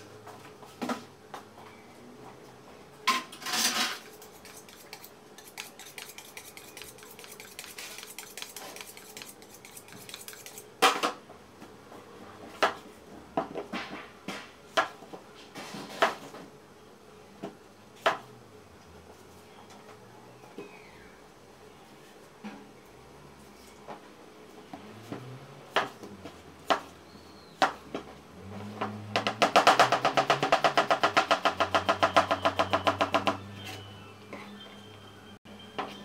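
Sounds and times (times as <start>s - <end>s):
knife scraping on honing steel: 3.4s - 10.7s.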